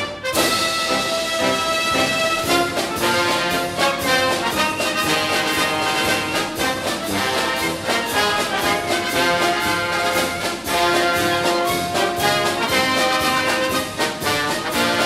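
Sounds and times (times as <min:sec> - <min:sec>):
brass-led orchestral music: 0:00.0 - 0:15.0.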